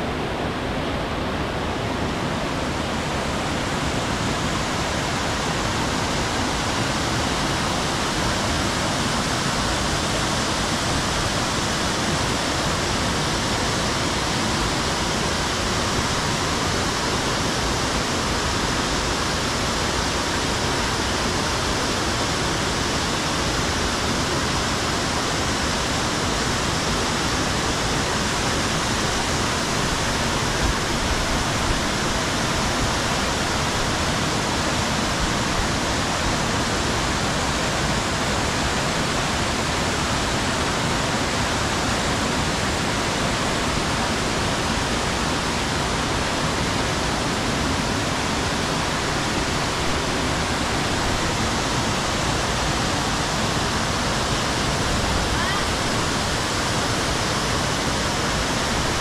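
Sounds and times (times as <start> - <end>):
stream tumbling over boulders: 0.0 - 59.0
waterfall rushing: 0.0 - 59.0.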